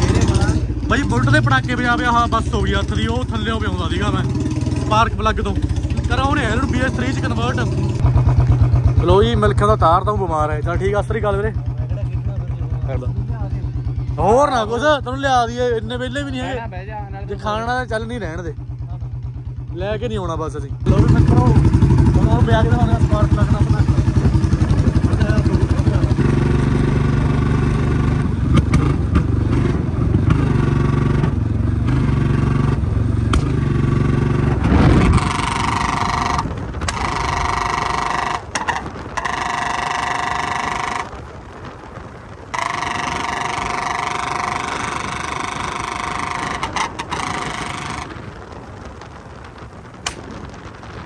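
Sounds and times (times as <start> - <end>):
motorcycle engine running: 0.0 - 51.0
steady high tones: 42.5 - 48.1.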